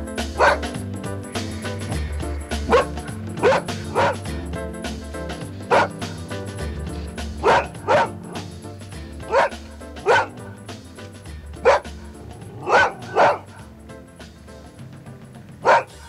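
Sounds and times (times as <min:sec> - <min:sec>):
background music: 0:00.0 - 0:16.0
dog barking: 0:00.4 - 0:00.8, 0:02.6 - 0:04.3, 0:05.7 - 0:06.2, 0:07.3 - 0:08.6, 0:09.2 - 0:10.6, 0:11.6 - 0:13.7, 0:15.6 - 0:16.0.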